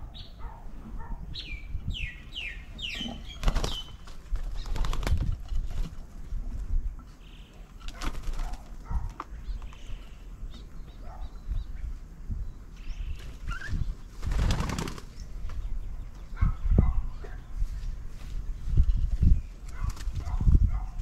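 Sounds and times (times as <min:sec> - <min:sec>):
doves flapping wings: 0:03.3 - 0:06.7, 0:07.7 - 0:09.7, 0:13.2 - 0:15.7, 0:19.1 - 0:20.5.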